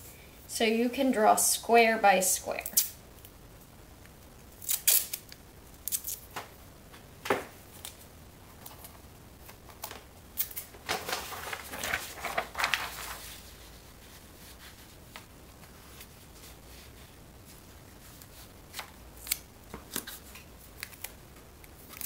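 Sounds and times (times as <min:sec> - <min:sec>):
paper rustling: 0:08.6 - 0:21.1
paper snapping and crackling: 0:09.4 - 0:13.4, 0:18.7 - 0:22.0.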